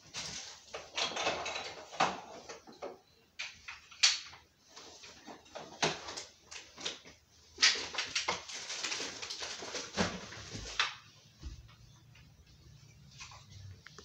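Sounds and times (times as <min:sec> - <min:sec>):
toys clattering in plastic bin: 0:00.2 - 0:02.6.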